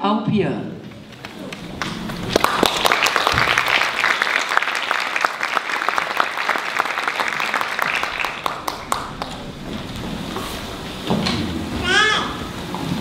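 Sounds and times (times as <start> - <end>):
audience applauding: 1.0 - 10.6.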